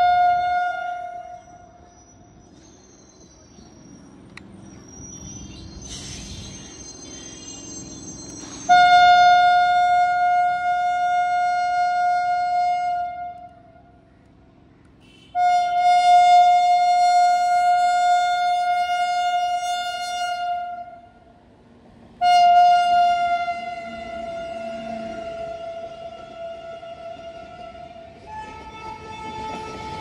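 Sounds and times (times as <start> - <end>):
locomotive horn blasts: 0.0 - 1.8, 8.7 - 13.8, 15.0 - 21.2, 22.2 - 30.0.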